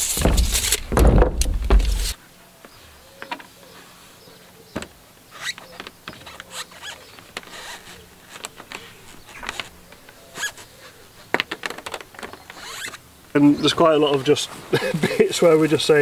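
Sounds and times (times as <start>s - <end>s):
hands clicking and scraping plastic: 5.4s - 10.6s, 11.2s - 13.0s.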